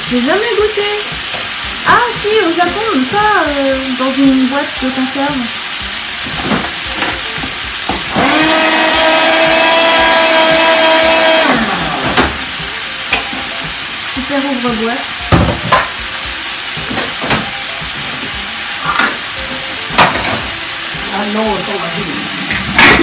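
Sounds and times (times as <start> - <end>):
frying pan sizzling: 0.0 - 23.0
can opener motor whining: 6.7 - 13.4.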